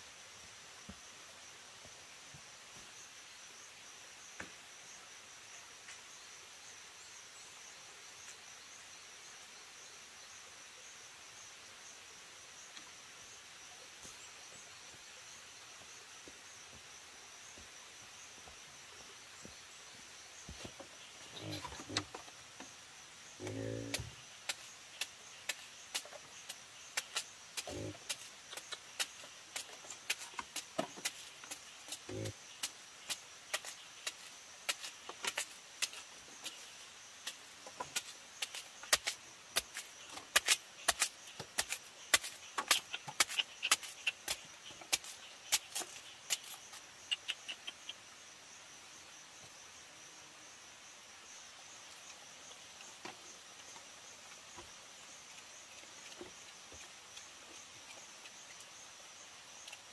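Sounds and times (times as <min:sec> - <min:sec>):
wild boar grunting: 0:21.3 - 0:22.2, 0:23.4 - 0:24.2, 0:32.0 - 0:32.4.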